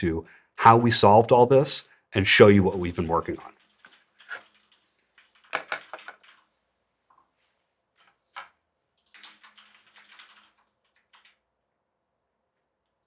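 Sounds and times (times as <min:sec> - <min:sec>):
keyboard taps and clicks: 0:03.7 - 0:06.4.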